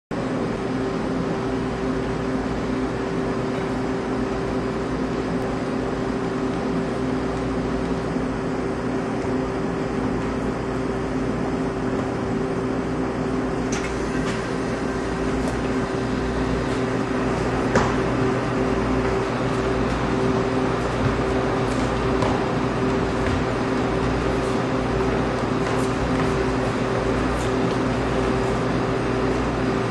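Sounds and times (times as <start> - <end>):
droning hum: 0.2 - 29.9.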